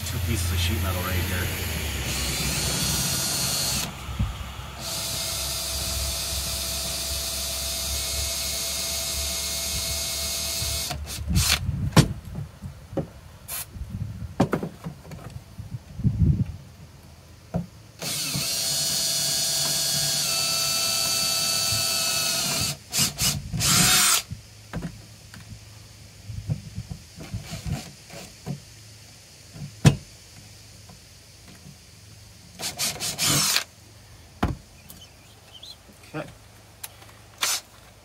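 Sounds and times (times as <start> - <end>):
cordless drill whining: 0.0 - 11.6, 18.0 - 24.3, 32.6 - 33.7, 37.4 - 37.7.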